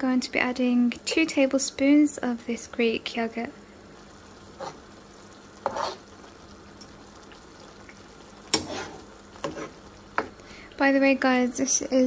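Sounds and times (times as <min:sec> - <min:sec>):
low sizzle: 0:00.0 - 0:12.0
metal spoon scraping a pan: 0:04.6 - 0:04.8, 0:05.6 - 0:06.1, 0:08.5 - 0:09.8.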